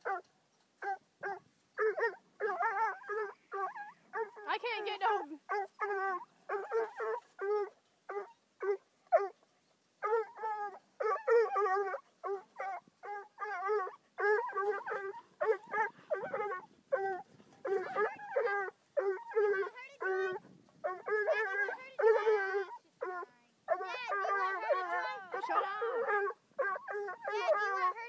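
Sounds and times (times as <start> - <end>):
puppy barking and baying: 10.0 - 28.0.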